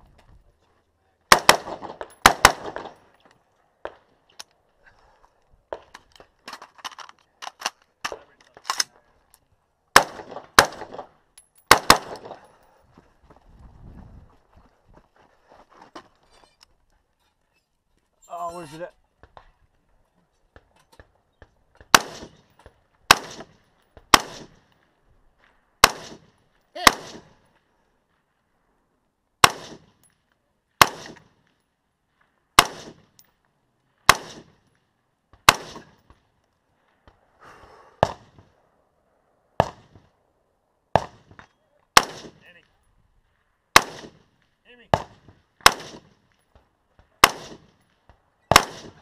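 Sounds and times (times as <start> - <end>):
rifle shots with echo: 1.3 - 3.1, 9.9 - 12.4, 21.9 - 22.5, 23.1 - 24.6, 25.8 - 27.4, 29.4 - 30.0, 30.8 - 31.3, 32.6 - 33.1, 34.1 - 34.6, 35.4 - 36.1, 42.0 - 42.5, 43.7 - 46.2, 47.1 - 47.8, 48.5 - 49.0.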